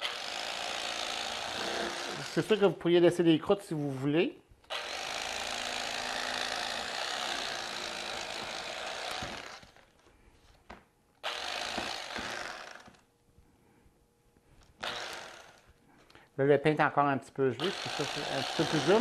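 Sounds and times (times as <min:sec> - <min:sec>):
electric carving knife sawing bread: 0:00.0 - 0:02.8, 0:04.7 - 0:09.9, 0:11.2 - 0:13.0, 0:14.8 - 0:15.7, 0:17.6 - 0:19.0.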